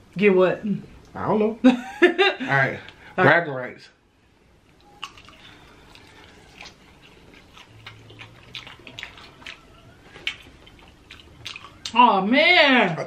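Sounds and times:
wet chewing and lip-smacking: 4.7 - 12.0.

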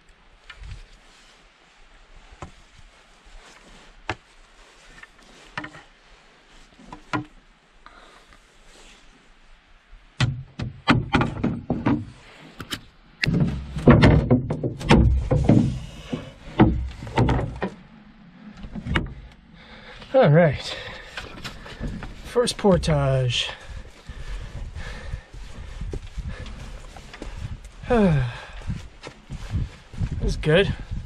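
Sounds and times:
canoe and gear thumping and scraping: 3.5 - 6.0, 10.2 - 18.0, 20.6 - 31.0
canoe clicks and knocks: 10.2 - 17.8.

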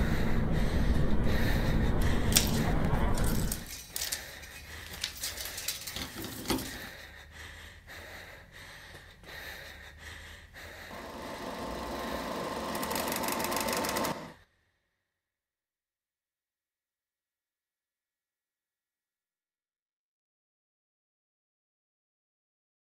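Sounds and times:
low hum: 0.0 - 3.7
clicks and crackles: 2.3 - 6.8.

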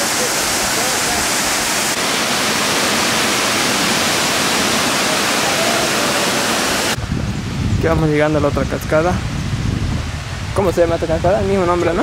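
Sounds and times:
waterfall rushing over rocks: 0.0 - 7.2.

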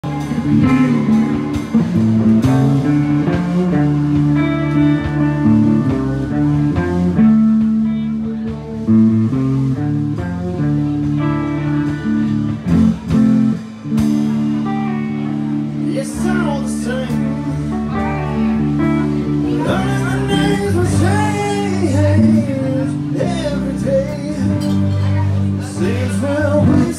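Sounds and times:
blues-rock band playing: 0.0 - 26.9
electric guitar riff: 0.0 - 26.9
man singing: 15.8 - 18.0, 19.4 - 26.9.

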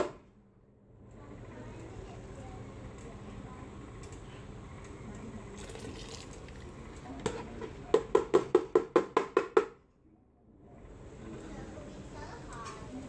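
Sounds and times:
plastic bowl knocking on metal pot: 7.9 - 9.7.

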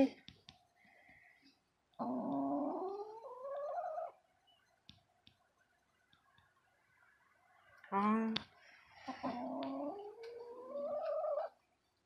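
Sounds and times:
hen growling: 2.0 - 4.1, 9.1 - 11.5.

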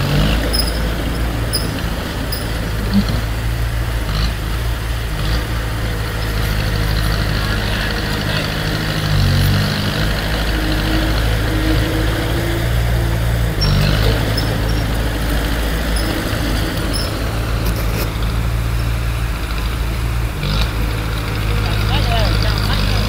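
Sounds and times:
heavy diesel engine running: 0.0 - 23.0.

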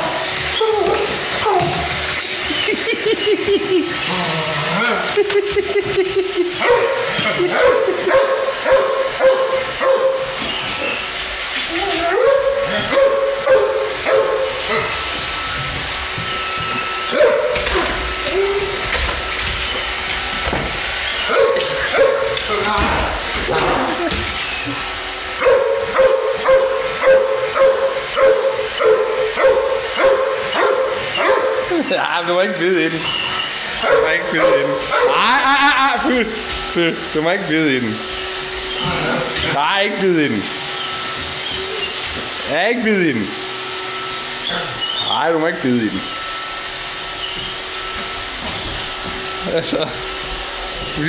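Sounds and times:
dog yelping and whining: 21.0 - 22.8, 33.0 - 35.3, 40.8 - 42.0, 44.4 - 45.2
dog whining and yipping: 40.8 - 42.0.

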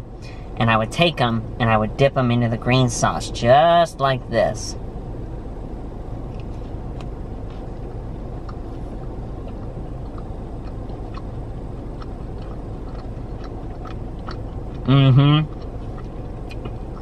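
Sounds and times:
car engine and air conditioning hum: 0.0 - 17.0
person chewing: 6.4 - 17.0.

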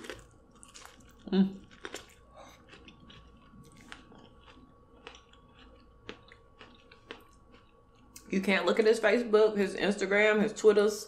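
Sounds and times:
chewing corn on the cob: 0.0 - 8.3.

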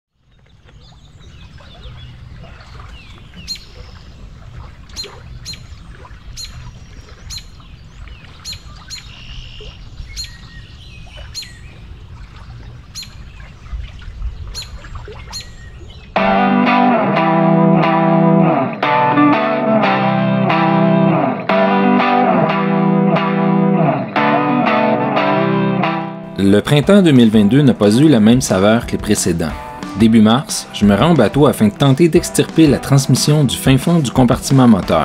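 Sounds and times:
birds chirping: 0.1 - 16.9, 26.3 - 35.0
distorted electric guitar music: 16.2 - 35.0.

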